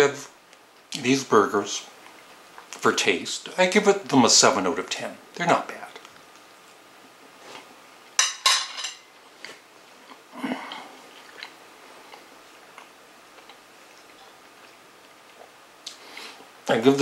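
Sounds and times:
cutlery clinking against dishes: 8.2s - 9.1s.

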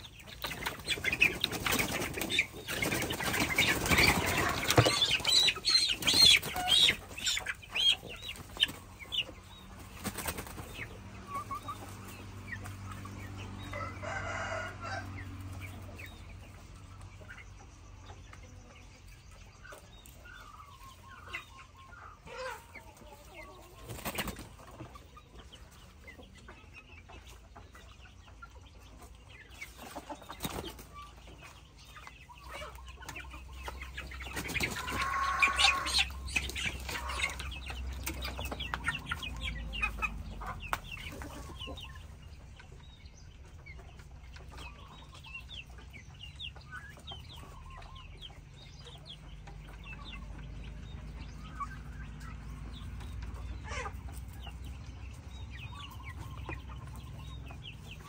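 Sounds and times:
chickens clucking and cheeping: 0.0s - 58.0s
chicken squawking: 2.0s - 8.0s, 34.7s - 37.4s.

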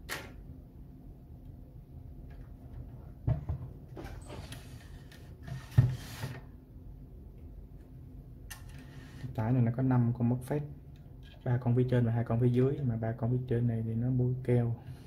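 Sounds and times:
rustling and scraping: 3.9s - 6.5s.

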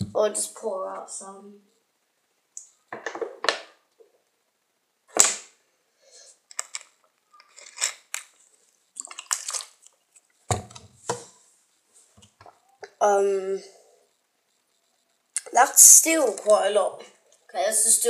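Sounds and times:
water pouring: 9.0s - 10.0s
plastic water bottle knocks: 10.5s - 10.8s.

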